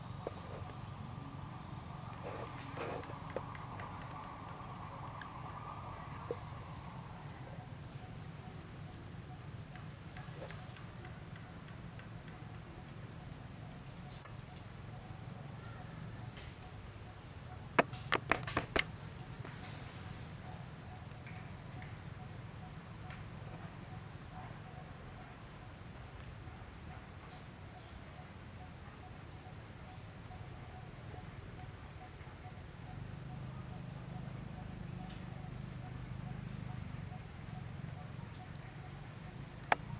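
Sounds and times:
low steady hum: 0.0 - 18.0
insect chirping: 0.0 - 39.9
sharp clicks: 38.5 - 39.9.

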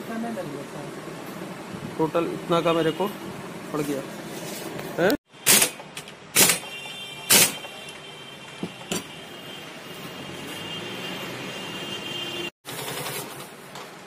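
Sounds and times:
pneumatic impact wrench bursts: 5.4 - 7.8.

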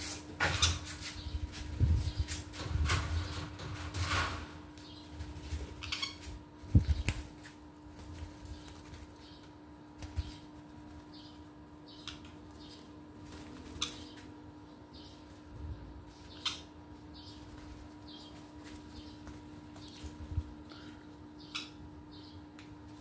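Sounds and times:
birds flapping wings: 6.6 - 9.2, 12.8 - 14.1.

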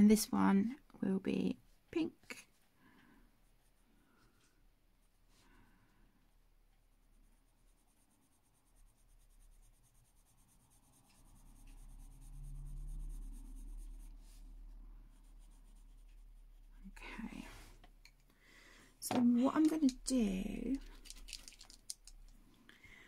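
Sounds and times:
pencil scratching on paper: 6.7 - 17.4
hand rubbing on paper: 6.8 - 17.7.

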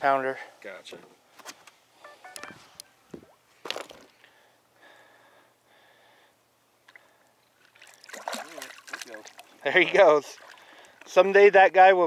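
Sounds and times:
fish splashing at water surface: 6.9 - 9.6, 10.2 - 11.0.

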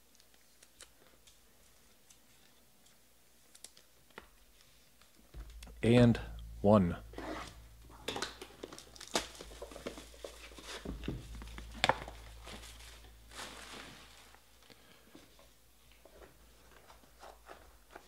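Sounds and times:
plastic wrap crinkling and tearing: 8.2 - 14.5.

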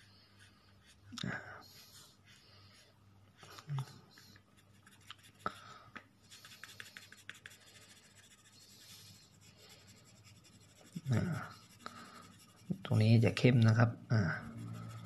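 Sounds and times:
pencil scratching on paper: 0.0 - 2.9, 4.2 - 5.4, 6.3 - 13.4, 14.3 - 15.0.

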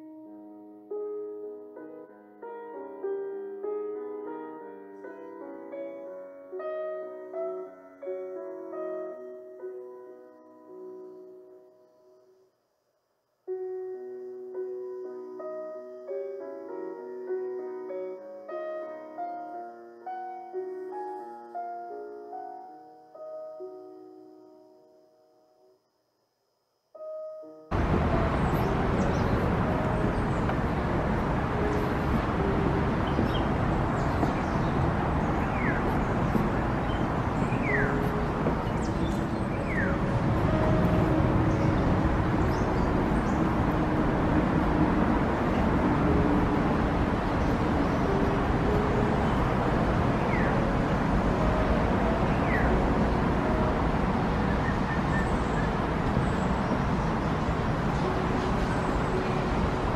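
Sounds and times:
distant road traffic: 27.7 - 59.9
bird chirps: 33.0 - 40.8.

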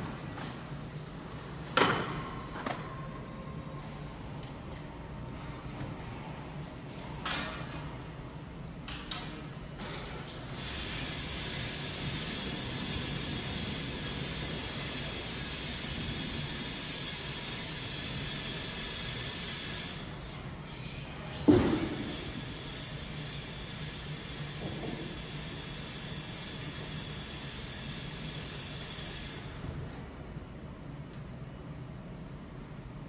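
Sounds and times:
hydraulic hiss: 10.3 - 20.3, 21.4 - 29.6.

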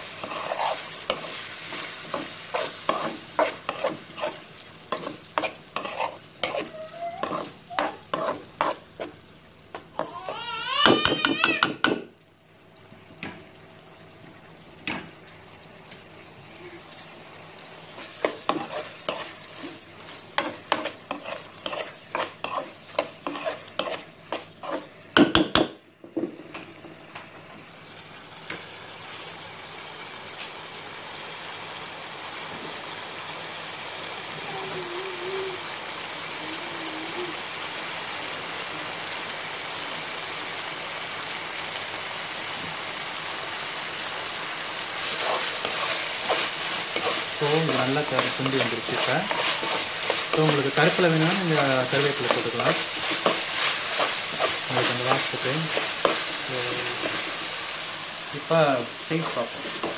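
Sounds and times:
spatula scraping a wok: 0.0 - 9.2, 17.9 - 25.0, 44.9 - 58.0, 58.9 - 59.9
sauce simmering and sizzling: 0.0 - 25.9, 26.5 - 59.9.

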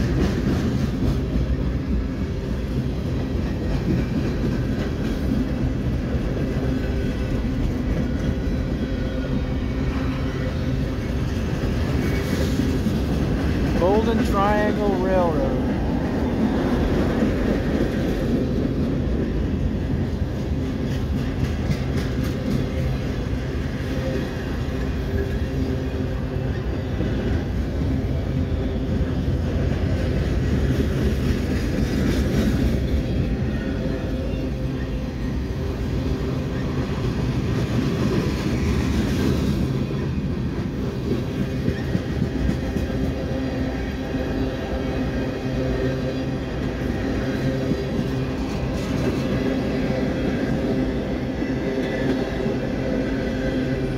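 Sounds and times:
train wheels rumbling on rails: 0.0 - 53.9
train wheel clicks: 20.8 - 23.0.

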